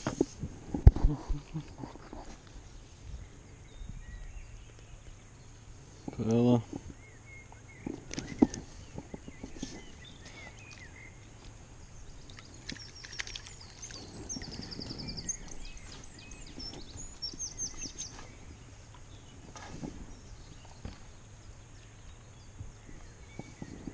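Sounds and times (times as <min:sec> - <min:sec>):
small bird singing: 0:01.3 - 0:23.9.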